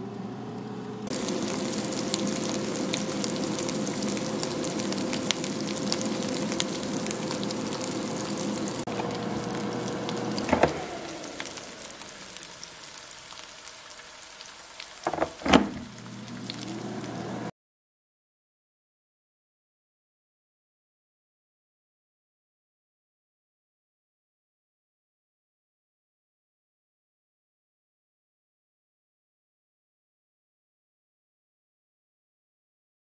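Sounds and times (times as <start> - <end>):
meat sizzling in oil: 1.0 - 17.5.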